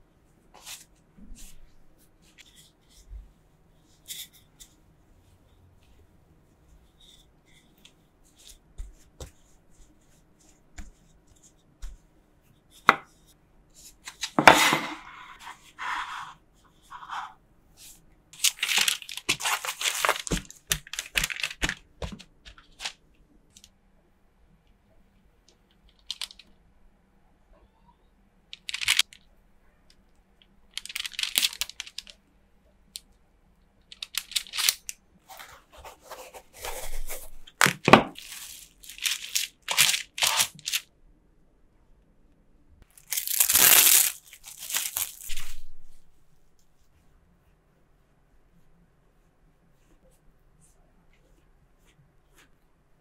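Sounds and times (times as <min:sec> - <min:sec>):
parchment paper crinkling: 0:18.4 - 0:23.7, 0:25.8 - 0:26.5, 0:28.6 - 0:29.2, 0:30.7 - 0:32.2, 0:33.9 - 0:40.9, 0:42.9 - 0:45.7.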